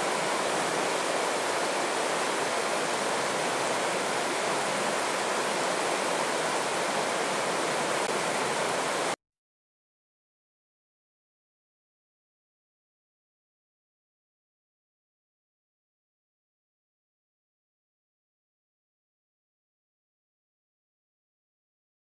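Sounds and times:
river rushing over boulders: 0.0s - 9.2s.

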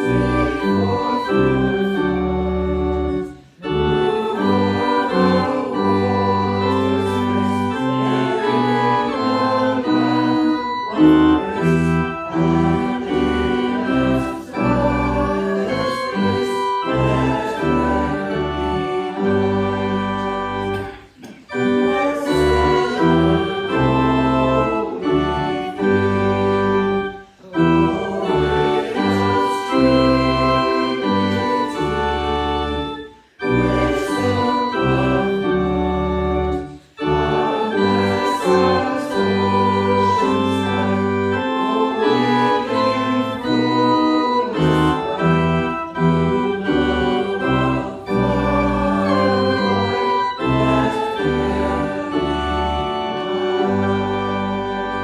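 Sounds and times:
organ playing a hymn: 0.0s - 55.0s.

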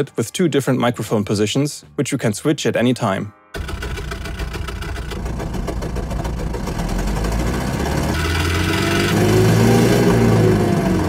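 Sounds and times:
synthesized engine running: 3.6s - 11.0s.

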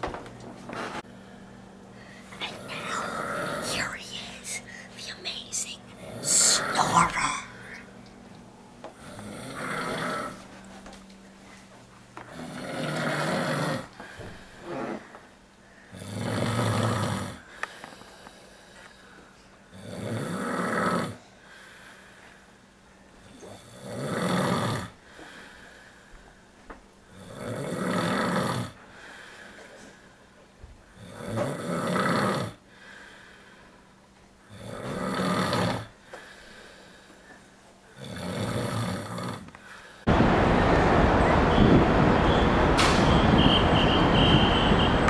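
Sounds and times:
soft breaths: 1.0s - 8.0s, 17.4s - 19.7s, 25.0s - 26.6s, 28.8s - 31.0s, 32.6s - 34.3s, 35.9s - 38.0s
man snoring: 2.5s - 5.4s, 6.0s - 7.8s, 9.0s - 10.4s, 12.3s - 13.9s, 15.9s - 17.5s, 19.7s - 21.2s, 23.4s - 25.0s, 27.1s - 28.8s, 31.0s - 32.6s, 34.5s - 36.0s, 38.0s - 39.5s.

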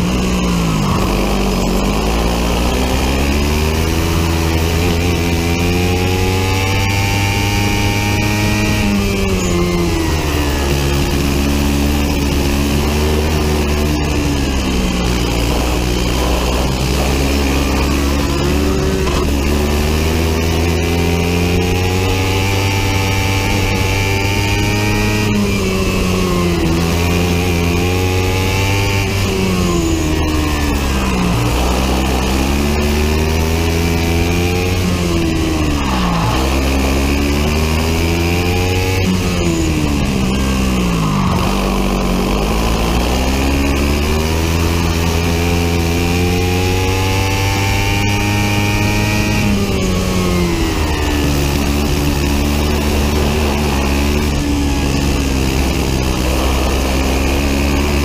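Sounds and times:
kart engine racing: 0.0s - 58.0s.

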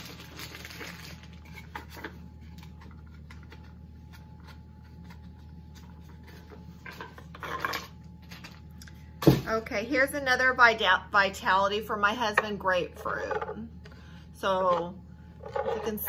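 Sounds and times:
bag rustling and crinkling: 0.0s - 2.7s.

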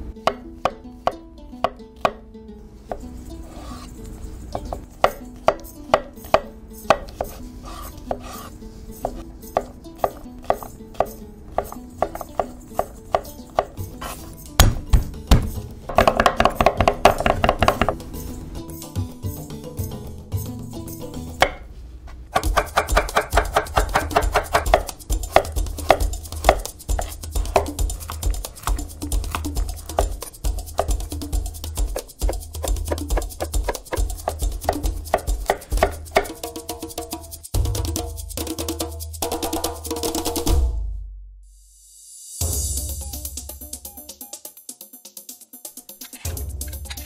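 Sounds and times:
knife chopping on wooden board: 4.6s - 18.0s, 21.4s - 21.6s, 22.4s - 31.0s, 31.8s - 36.4s.

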